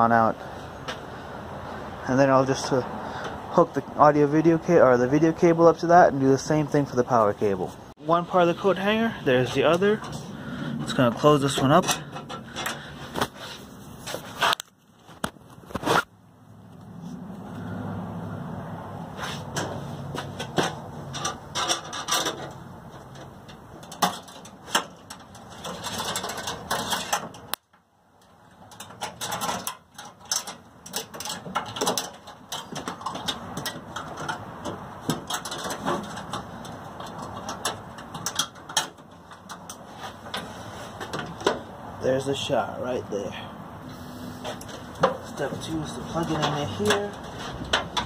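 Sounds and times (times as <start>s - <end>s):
wire scraping and rattling in metal: 8.1s - 16.1s, 19.1s - 27.6s, 28.2s - 42.5s, 43.9s - 48.0s.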